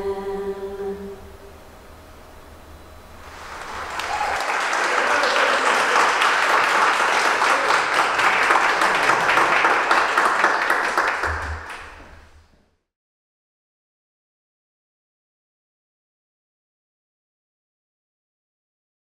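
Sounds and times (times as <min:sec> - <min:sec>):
audience applauding: 0:03.2 - 0:12.2.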